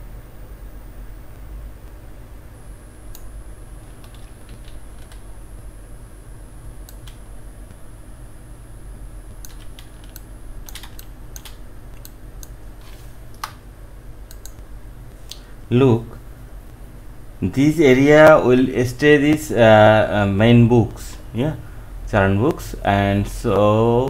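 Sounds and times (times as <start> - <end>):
steady low hum: 0.0 - 24.0
keyboard and mouse clicks: 9.4 - 12.6, 14.3 - 14.6.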